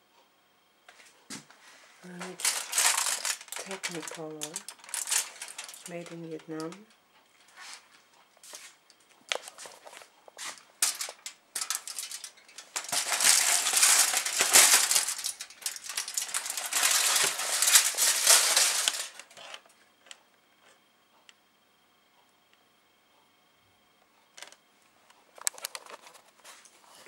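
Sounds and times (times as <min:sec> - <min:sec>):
aluminium foil crinkling: 0:02.0 - 0:19.7.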